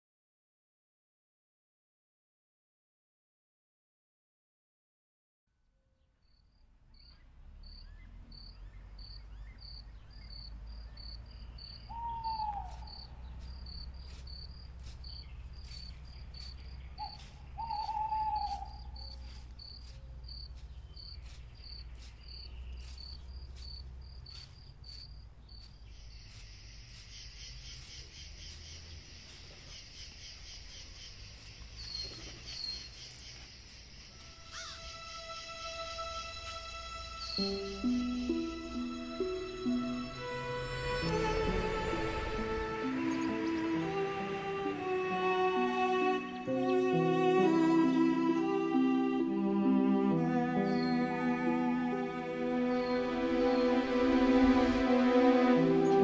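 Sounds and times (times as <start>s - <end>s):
insect chirping: 6.2s - 44.0s
high insect chorus: 6.3s - 44.2s
bird calling: 7.0s - 39.8s.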